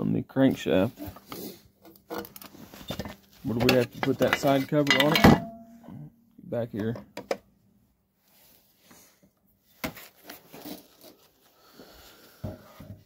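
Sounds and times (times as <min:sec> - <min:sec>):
metal parts clinking on bench: 0:03.6 - 0:05.6.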